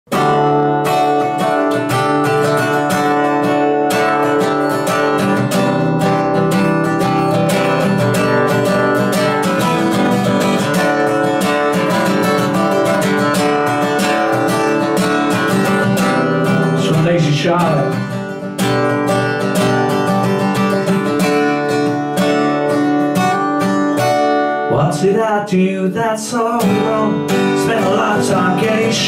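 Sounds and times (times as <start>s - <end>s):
guitar strummed: 0.1s - 29.0s.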